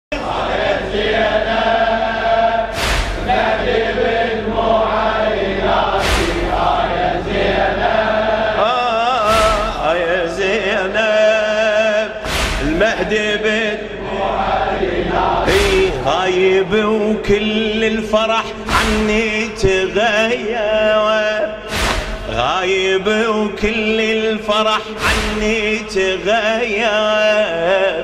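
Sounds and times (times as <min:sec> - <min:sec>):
men chanting in chorus: 0:00.1 - 0:28.0
chest beating strikes: 0:02.7 - 0:03.5, 0:06.0 - 0:06.8, 0:09.3 - 0:09.9, 0:12.2 - 0:13.0, 0:15.5 - 0:16.0, 0:21.7 - 0:22.5, 0:25.0 - 0:25.8.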